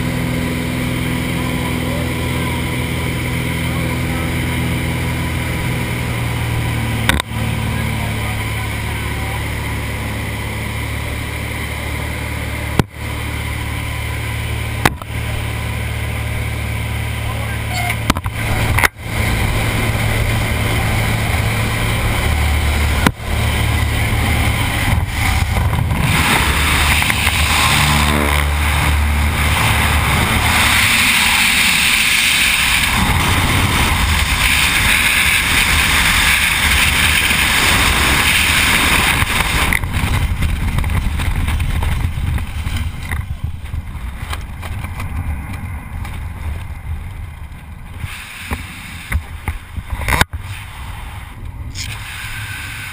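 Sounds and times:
plane engine droning in cabin: 0:00.0 - 0:52.9
wind buffeting microphone: 0:18.2 - 0:48.0.

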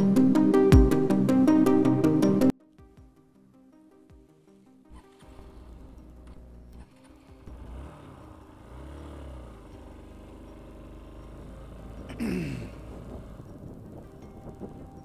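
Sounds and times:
vehicle engine running: 0:04.9 - 0:15.0
vehicle passing by: 0:06.8 - 0:14.0.

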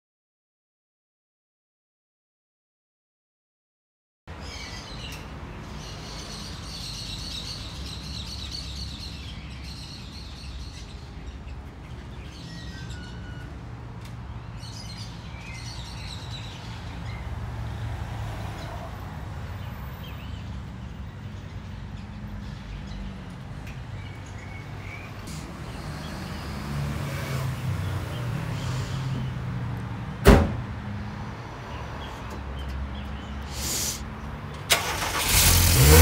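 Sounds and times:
birds chirping: 0:19.6 - 0:27.0.

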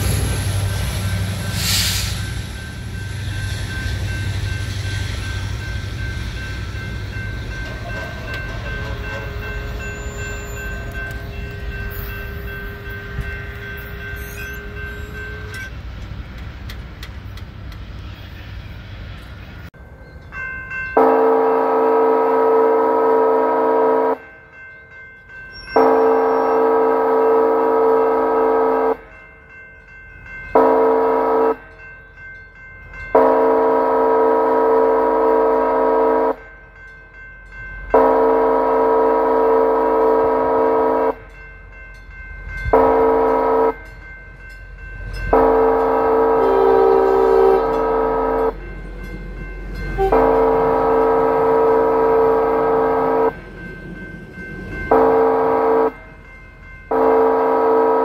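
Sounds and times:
crossing signal bell ringing: 0:00.0 - 0:15.8, 0:19.8 - 0:58.0
low train rumble: 0:00.0 - 0:58.0
locomotive air horn: 0:21.0 - 0:24.2, 0:25.8 - 0:29.1, 0:30.6 - 0:31.6, 0:33.2 - 0:36.5, 0:37.9 - 0:41.3, 0:42.7 - 0:43.8, 0:45.3 - 0:48.6, 0:49.9 - 0:53.4, 0:54.9 - 0:56.0, 0:56.9 - 0:58.0.

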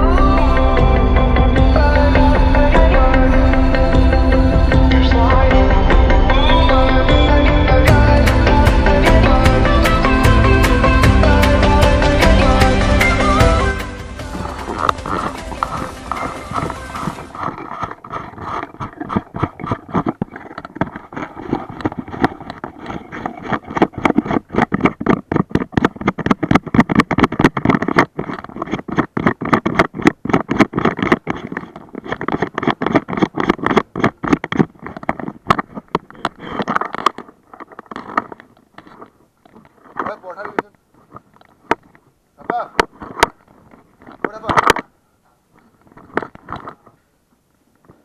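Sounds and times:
camera handling noise against cloth: 0:14.5 - 0:44.9.

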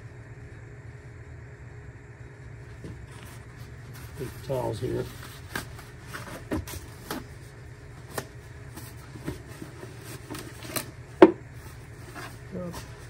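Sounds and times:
steady low hum: 0:00.0 - 0:13.0
paper towels tearing and rustling: 0:03.1 - 0:11.0.

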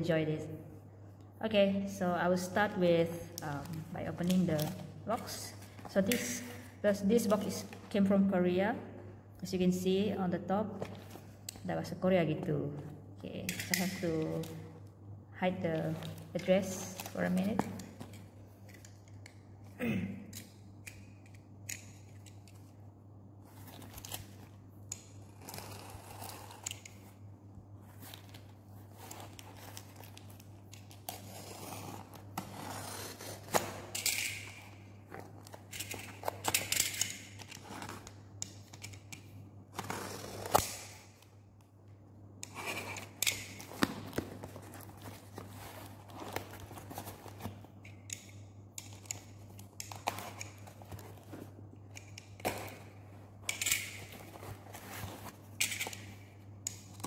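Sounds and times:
low steady hum: 0:00.0 - 0:57.0
knife slitting packing tape: 0:39.8 - 0:41.1.

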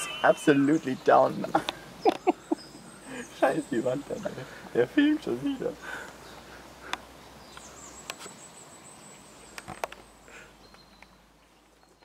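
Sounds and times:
high steady note: 0:00.0 - 0:01.3
outdoor ambience: 0:00.0 - 0:12.0.

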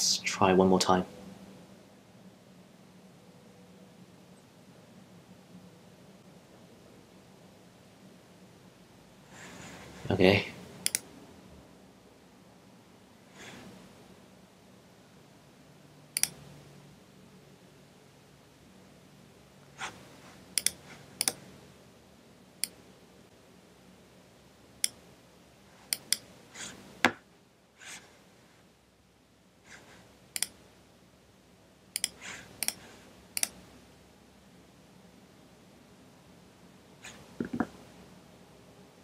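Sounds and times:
computer mouse clicking: 0:10.8 - 0:11.0, 0:16.2 - 0:16.4, 0:20.5 - 0:21.4, 0:25.9 - 0:26.3, 0:30.4 - 0:30.6, 0:32.0 - 0:32.8, 0:33.4 - 0:33.6.

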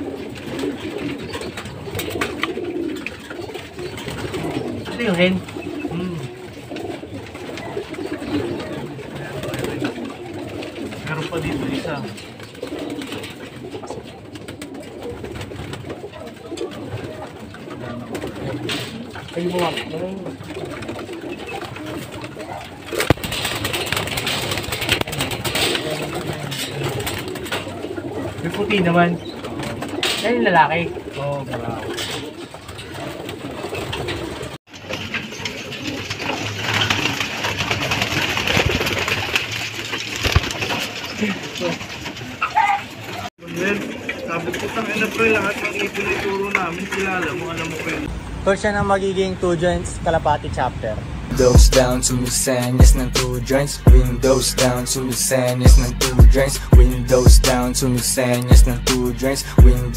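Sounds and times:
pigeons cooing: 0:00.0 - 0:48.1
wings flapping and rustling: 0:00.0 - 0:48.1.

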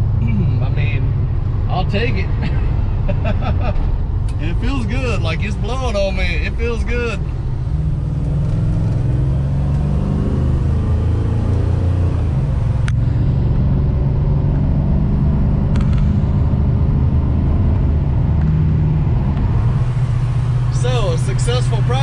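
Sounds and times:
car engine droning: 0:00.0 - 0:22.0.

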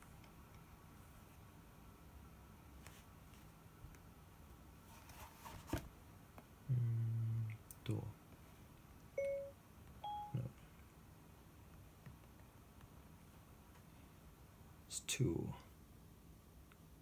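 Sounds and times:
man humming: 0:06.7 - 0:07.6.

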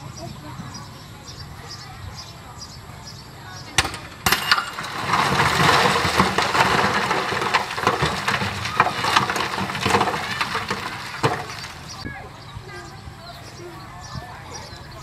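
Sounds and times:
sharp metal clanks: 0:03.8 - 0:09.6
dirt and stones crunching: 0:03.8 - 0:12.1
heavy machinery: 0:03.8 - 0:12.1.

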